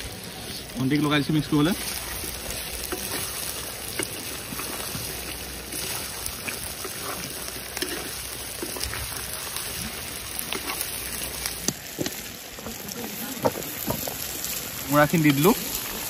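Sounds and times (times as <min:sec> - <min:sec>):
food sizzling in hot oil: 0:00.0 - 0:16.0
small crackles: 0:00.0 - 0:16.0.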